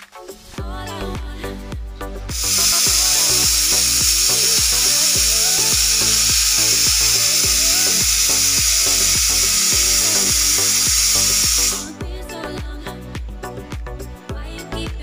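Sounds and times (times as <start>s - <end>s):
music with steady beat: 0.0s - 15.0s
pressure cooker whistling: 2.3s - 11.9s.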